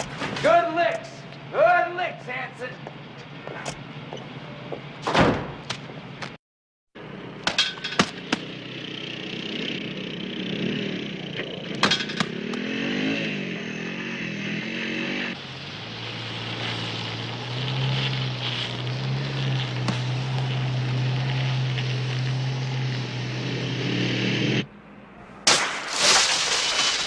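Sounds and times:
motorcycle engine running: 8.1 - 13.8.

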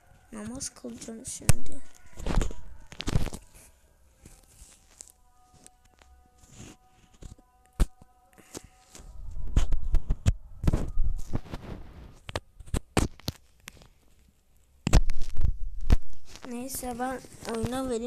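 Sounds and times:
faint game background music: 0.0 - 9.7.

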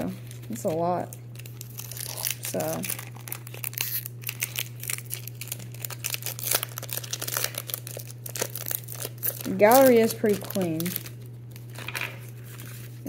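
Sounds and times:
foil wrapper crinkling: 0.0 - 13.0
steady low hum: 0.0 - 13.0.

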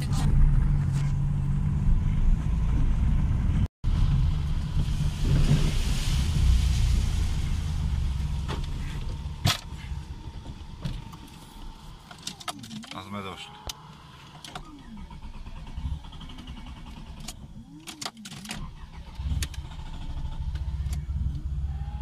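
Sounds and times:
car engine rumbling: 0.0 - 22.0.

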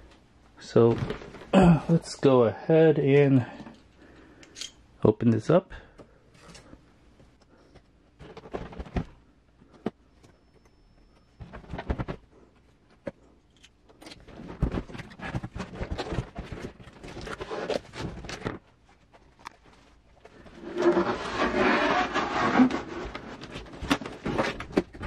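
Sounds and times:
cardboard rustling: 14.2 - 25.0
cardboard box scraping and knocking: 20.5 - 25.0.

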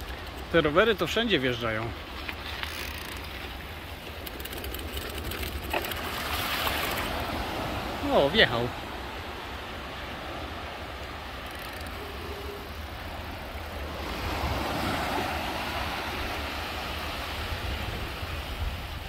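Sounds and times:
surf washing: 0.0 - 19.0
wind buffeting microphone: 11.9 - 19.0.

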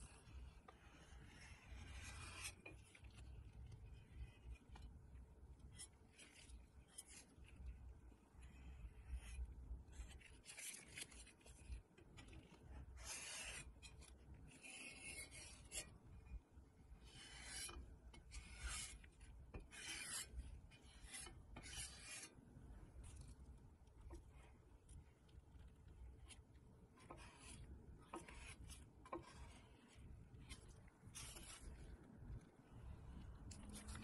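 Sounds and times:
scraping strokes by hand: 0.0 - 34.0.

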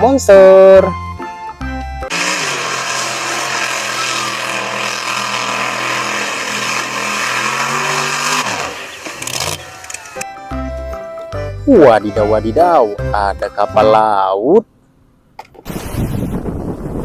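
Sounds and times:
truck engine at high revs: 1.8 - 10.2.

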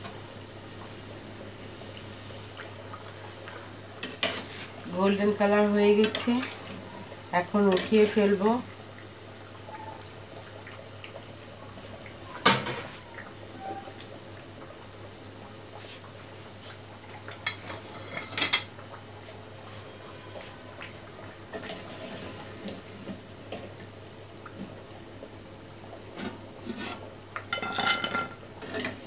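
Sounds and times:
food sizzling in hot oil: 0.0 - 29.0
metal utensils clanking on pan: 5.9 - 6.7, 7.6 - 8.4, 26.2 - 29.0.

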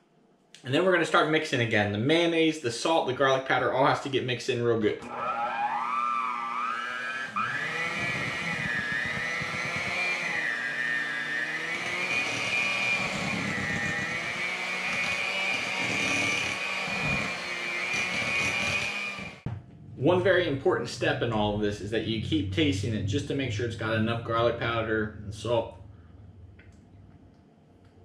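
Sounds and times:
electric mixer whining: 5.0 - 19.5.

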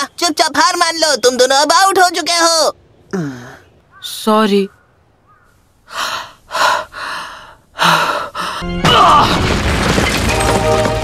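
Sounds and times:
rock crashing with deep rumble: 8.8 - 11.0.

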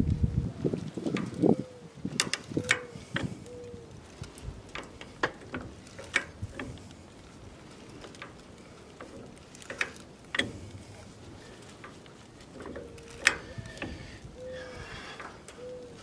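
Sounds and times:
jack ratchet metal clicks: 2.2 - 3.3, 4.6 - 6.9, 9.0 - 10.8, 11.8 - 14.2.

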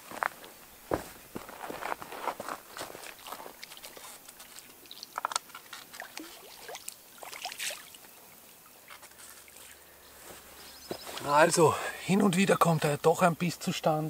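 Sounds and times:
water splashing and dripping: 2.9 - 8.1.

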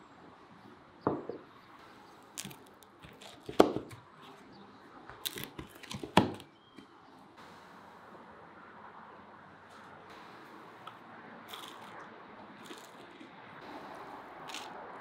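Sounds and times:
knife crunching through crisp crust: 2.3 - 4.0, 5.2 - 6.4, 11.5 - 12.0, 12.6 - 14.8.

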